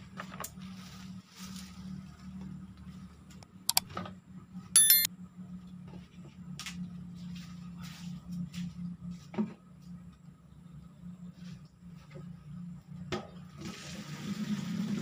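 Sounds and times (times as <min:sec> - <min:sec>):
bright bell chime: 0:04.8 - 0:05.1
sharp click: 0:04.8 - 0:05.1.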